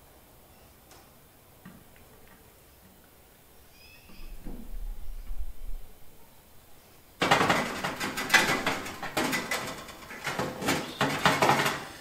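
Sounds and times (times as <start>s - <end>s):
metal wire racks rattling: 7.2s - 12.0s.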